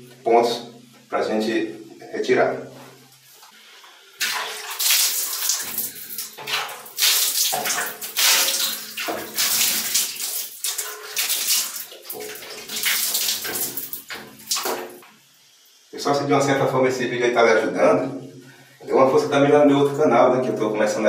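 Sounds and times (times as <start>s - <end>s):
water splashing on glass and tiles: 4.2s - 15.2s.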